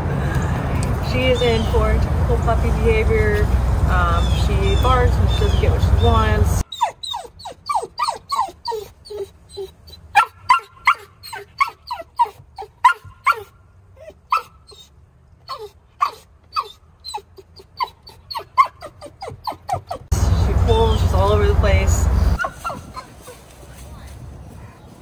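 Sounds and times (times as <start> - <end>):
puppy yipping and whining: 6.6 - 20.1, 22.4 - 23.4.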